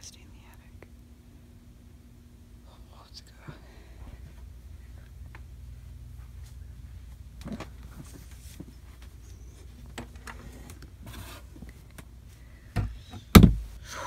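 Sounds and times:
steady low hum: 0:00.0 - 0:14.0
rustling and scuffs of movement: 0:06.1 - 0:12.4.

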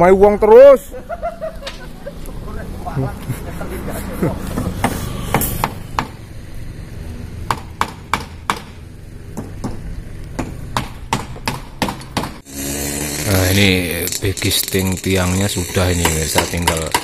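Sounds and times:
hammer blows on timber: 0:15.6 - 0:17.0.

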